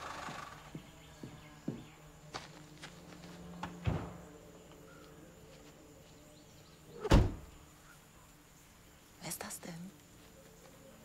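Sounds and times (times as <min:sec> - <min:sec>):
heavy door slam: 0:03.8 - 0:04.2, 0:07.0 - 0:07.5
van door thump: 0:03.8 - 0:04.3, 0:07.0 - 0:07.5.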